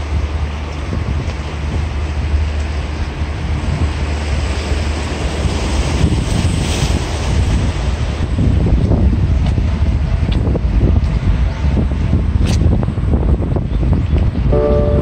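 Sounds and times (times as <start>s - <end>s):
surf washing on rocks: 0.0s - 9.7s
wind buffeting microphone: 0.0s - 15.0s.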